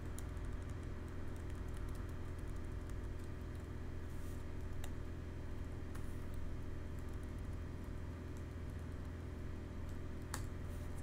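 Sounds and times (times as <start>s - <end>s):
keyboard typing: 0.0s - 3.7s
steady low hum: 0.0s - 11.0s.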